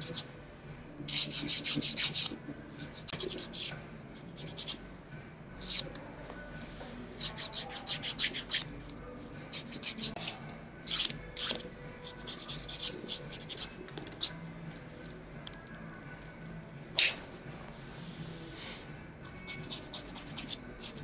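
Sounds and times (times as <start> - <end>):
nail file rasping on fingernails: 1.1 - 4.8, 5.6 - 5.9, 7.2 - 8.6, 9.6 - 13.7, 19.2 - 21.0.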